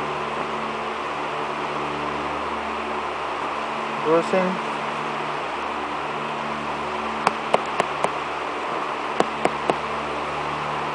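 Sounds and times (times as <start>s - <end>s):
steady background hum: 0.0s - 10.9s
fingers tapping peppers: 7.3s - 8.2s, 9.2s - 9.8s.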